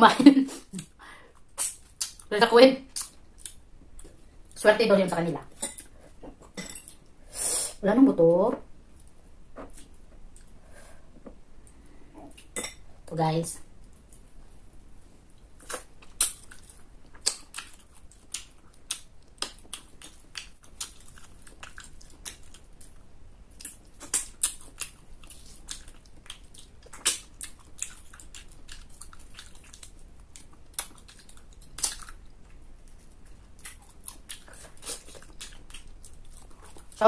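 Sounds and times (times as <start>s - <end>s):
person chewing crunchy food: 15.6s - 37.0s.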